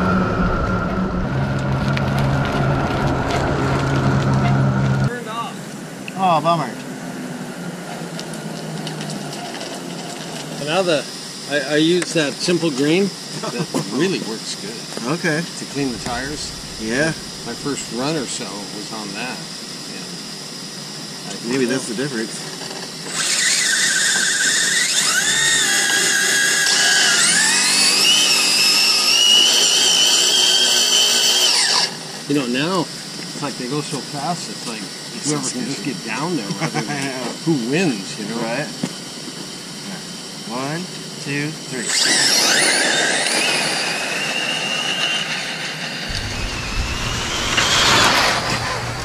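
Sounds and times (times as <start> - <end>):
electric motors whining: 0.0 - 5.2, 6.4 - 49.0
rc car passing by: 15.6 - 20.2, 21.2 - 32.2, 41.8 - 49.0.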